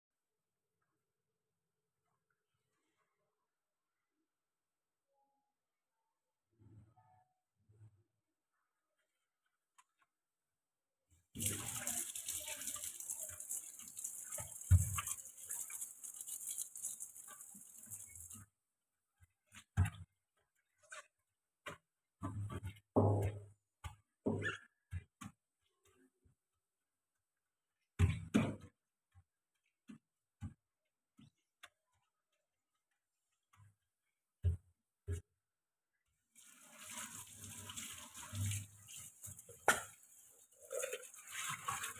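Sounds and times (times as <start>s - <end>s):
tap running into sink: 11.4s - 18.4s.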